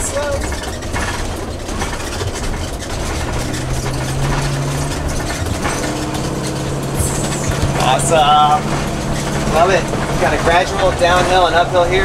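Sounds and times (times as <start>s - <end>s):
motorhome engine running: 0.0s - 12.0s
road noise: 0.0s - 12.0s
steady low drone: 3.1s - 12.0s.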